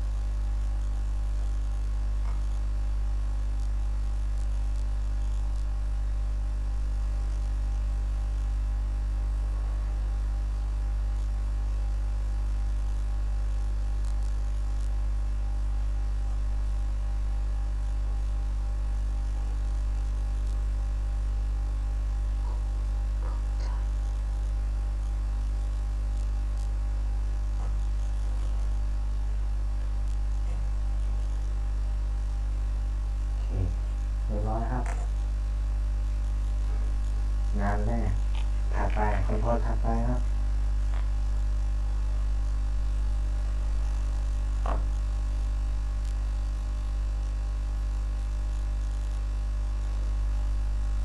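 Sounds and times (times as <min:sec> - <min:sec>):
electrical mains hum: 0:00.0 - 0:51.0.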